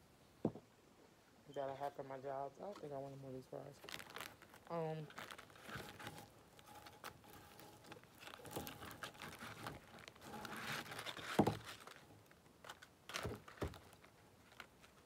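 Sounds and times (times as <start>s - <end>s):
paper bag rustling: 3.0s - 15.0s.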